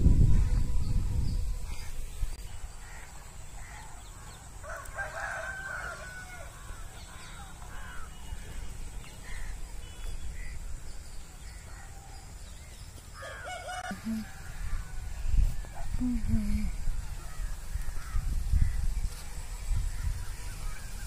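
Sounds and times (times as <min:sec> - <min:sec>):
low rumble on microphone: 0:00.0 - 0:03.0, 0:13.9 - 0:21.0
rooster crowing: 0:04.5 - 0:07.1, 0:13.2 - 0:15.3.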